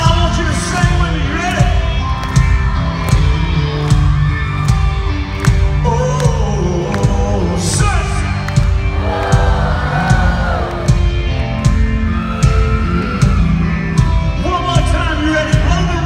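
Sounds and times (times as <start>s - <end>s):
live country rock band: 0.0s - 16.0s
steady drum beat: 0.0s - 16.0s.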